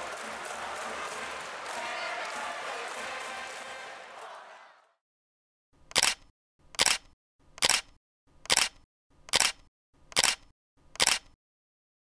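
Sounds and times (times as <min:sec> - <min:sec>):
camera shutter clicking: 0:05.9 - 0:11.4.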